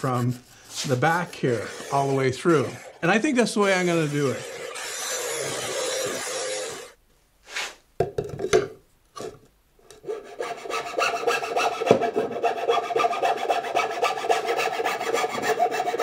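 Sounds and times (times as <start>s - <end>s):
hand file rasping wood: 0.0s - 2.9s, 10.0s - 16.0s.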